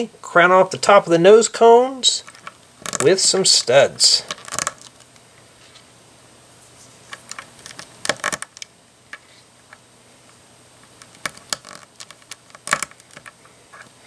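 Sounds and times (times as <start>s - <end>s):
plastic pieces clicking together: 2.3s - 3.2s, 4.3s - 5.1s, 7.1s - 8.7s, 11.0s - 13.4s.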